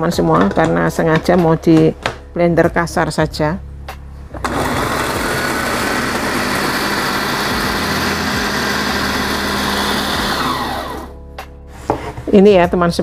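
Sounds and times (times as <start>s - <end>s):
electric blender chopping: 4.4s - 11.2s.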